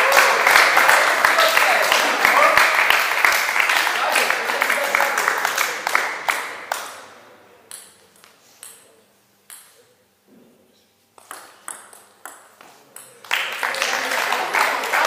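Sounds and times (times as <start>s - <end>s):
applause: 0.0s - 7.0s, 13.2s - 15.0s
table tennis ball hits: 7.7s - 8.9s, 9.5s - 9.8s, 11.2s - 13.3s.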